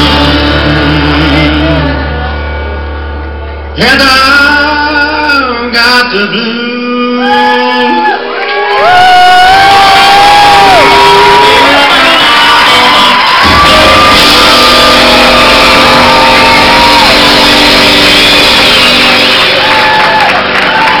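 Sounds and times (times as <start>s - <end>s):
live country band playing: 0.0s - 8.1s, 10.9s - 21.0s
crowd shouting: 7.6s - 21.0s.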